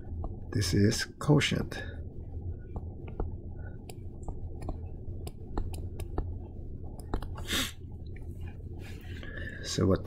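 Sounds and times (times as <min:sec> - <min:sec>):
stylus tapping on tablet screen: 0:00.0 - 0:00.4, 0:02.6 - 0:07.4
low steady hum: 0:00.0 - 0:10.0.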